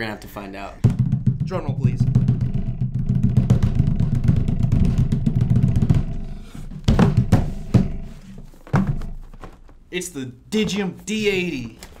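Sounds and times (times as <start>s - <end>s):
hands drumming on wooden table: 0.8s - 9.7s
heavy thumps on table: 0.8s - 9.8s.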